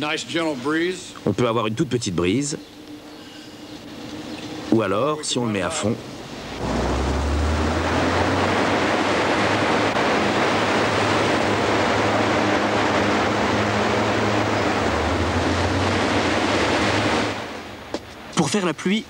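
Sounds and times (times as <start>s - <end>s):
low motor hum: 6.0s - 18.0s.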